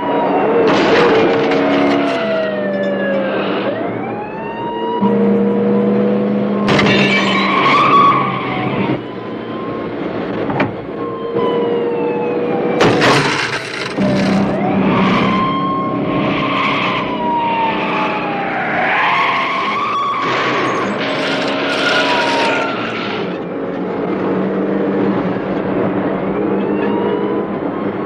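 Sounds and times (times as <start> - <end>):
police siren wailing: 0.0 - 28.0
vehicle engines running: 0.0 - 28.0
loud vehicle crashes: 0.5 - 3.8, 6.6 - 9.0, 12.7 - 15.5, 18.7 - 23.5
tyres skidding: 12.7 - 28.0.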